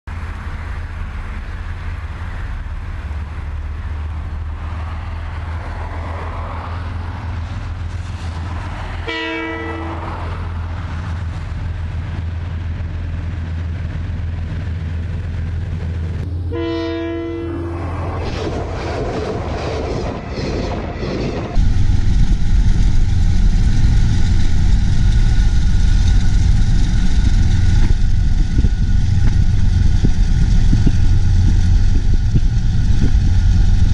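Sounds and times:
moving train rumble: 0.1s - 33.9s
locomotive horn blasts: 9.0s - 10.2s, 16.4s - 18.0s.

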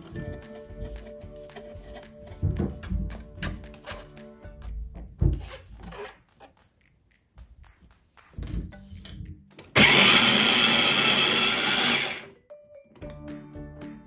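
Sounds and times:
food chopper motor whirring: 9.8s - 12.3s.

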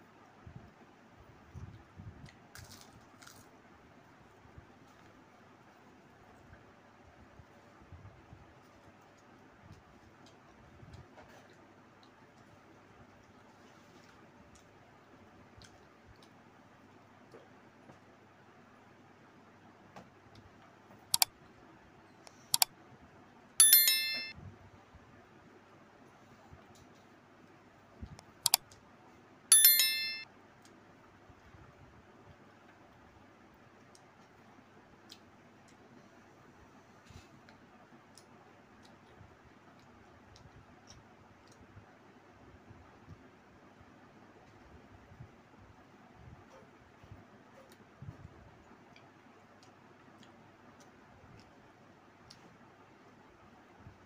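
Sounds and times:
small clicks from eating by hand: 1.7s - 3.5s, 15.5s - 16.4s, 37.4s - 41.8s, 48.7s - 52.6s
bright bell chime: 23.6s - 24.3s, 29.5s - 30.2s.

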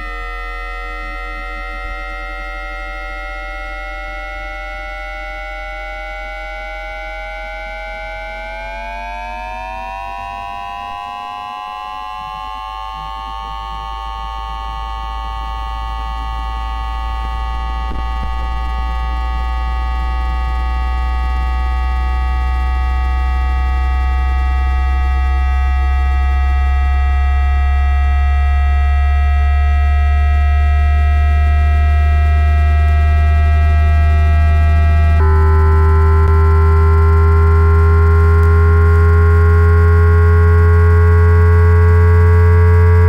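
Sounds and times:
train inverter whine: 0.0s - 43.0s
low hum: 5.1s - 43.0s.

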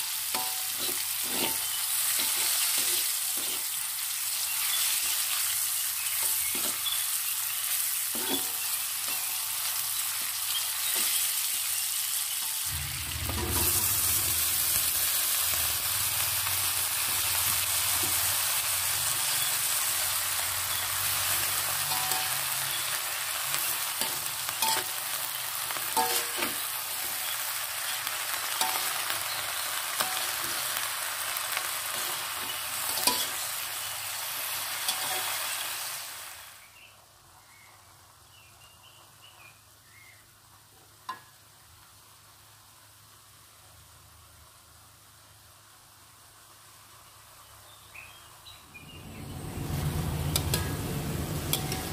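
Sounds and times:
food sizzling in hot oil: 0.0s - 51.9s
metal spatula scraping wok: 0.1s - 31.0s, 31.6s - 35.7s, 48.7s - 51.9s.

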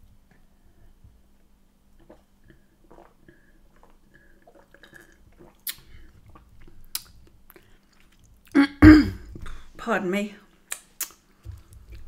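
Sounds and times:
swallowing and mouth sounds: 1.9s - 9.6s.

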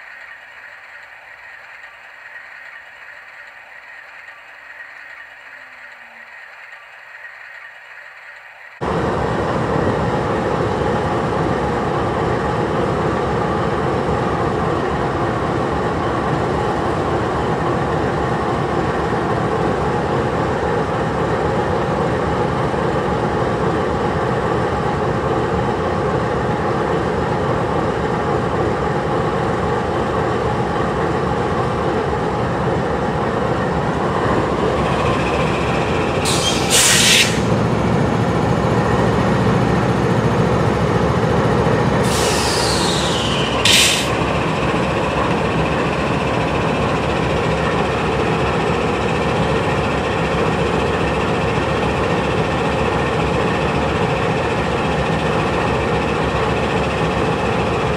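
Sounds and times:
diesel locomotive idling: 0.0s - 57.9s
brief air hiss: 36.3s - 37.5s, 42.0s - 44.2s.

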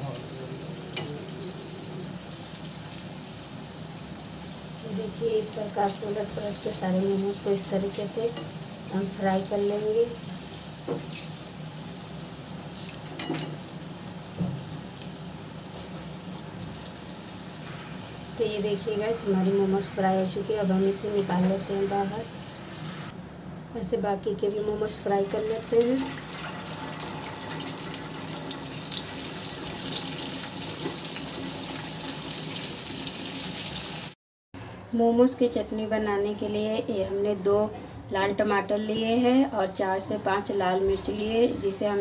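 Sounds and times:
deep-frying sizzle: 0.0s - 23.2s, 24.9s - 34.2s.

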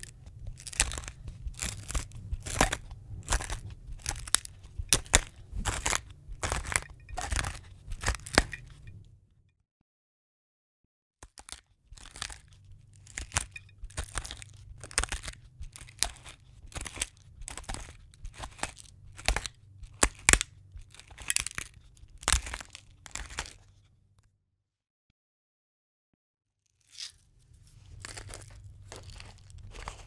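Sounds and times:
grinder crunching: 0.0s - 8.9s, 11.3s - 23.6s, 27.8s - 30.0s.

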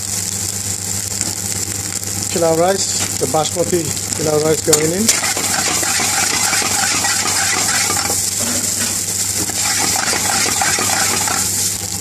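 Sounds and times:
food sizzling in pan: 2.7s - 12.0s
metal spoon scraping frying pan: 4.8s - 11.7s.

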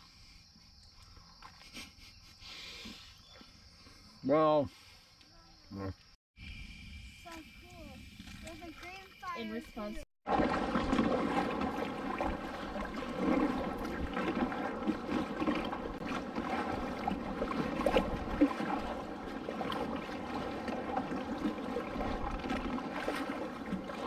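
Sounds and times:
kayak paddle dipping: 7.6s - 24.0s
water splashing against hull: 10.2s - 24.0s.

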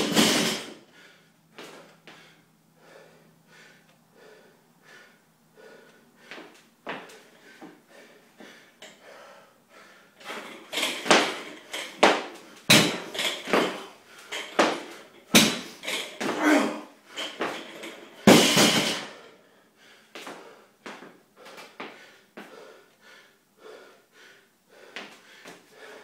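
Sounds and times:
barbell thudding on floor: 0.0s - 0.8s, 10.4s - 13.9s, 14.6s - 16.4s, 17.4s - 19.1s
heavy breathing: 0.8s - 10.8s, 19.0s - 26.0s.

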